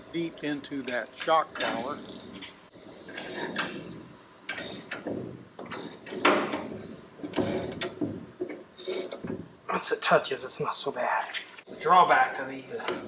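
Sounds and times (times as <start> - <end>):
metal scraping and clunks: 0.8 - 9.5.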